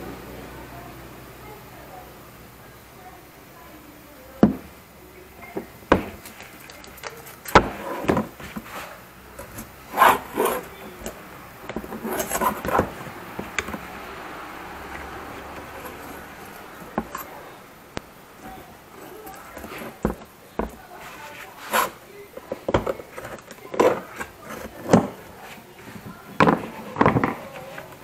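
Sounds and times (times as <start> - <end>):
scraping and clatter: 5.5 - 17.6
screwdriver scraping metal blade: 9.4 - 11.2, 11.8 - 12.9, 21.0 - 22.0.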